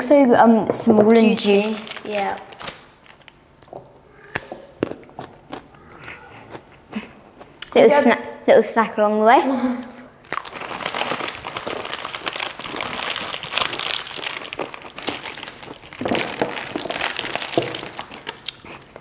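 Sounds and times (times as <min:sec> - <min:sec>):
plastic packet crinkling: 0:01.2 - 0:04.4, 0:10.2 - 0:19.0.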